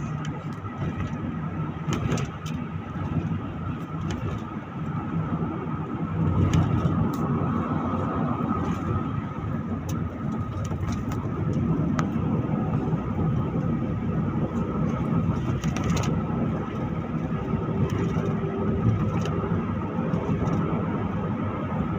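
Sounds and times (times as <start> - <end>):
road and engine drone: 0.0 - 21.9
light ticks and rattles: 14.5 - 19.4.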